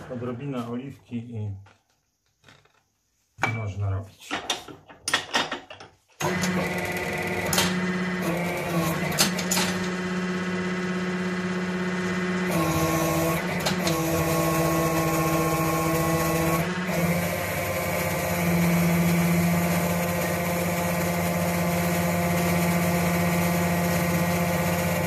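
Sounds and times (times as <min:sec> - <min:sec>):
hydraulic press pump humming: 0:06.2 - 0:25.0.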